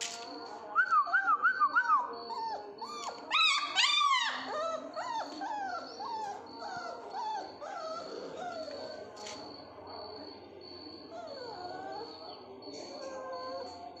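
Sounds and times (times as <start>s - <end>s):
puppies whining: 1.6s - 9.5s, 10.9s - 14.0s.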